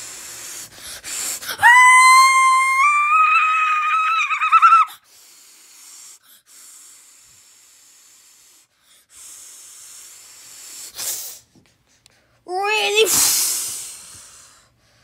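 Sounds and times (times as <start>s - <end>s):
faint breathy hissing: 0.0s - 1.6s, 4.9s - 15.0s.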